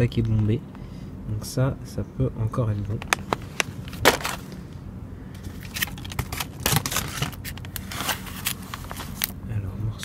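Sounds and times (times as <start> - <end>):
plastic packages rustling: 3.1 - 4.6, 5.5 - 9.4.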